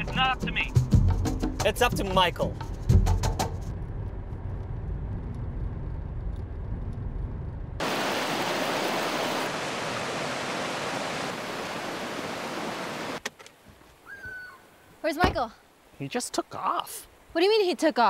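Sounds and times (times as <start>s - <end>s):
road rumble inside car: 3.3s - 7.8s
creek running over rocks: 7.8s - 18.0s.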